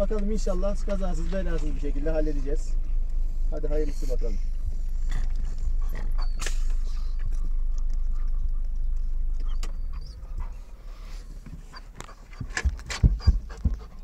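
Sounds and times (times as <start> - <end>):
car cabin rumble: 0.0 - 14.0
dog panting: 9.4 - 14.0.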